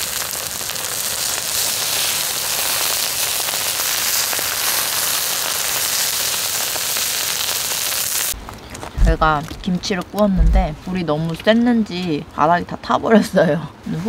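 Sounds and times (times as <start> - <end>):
food sizzling on a griddle: 0.0 - 8.4.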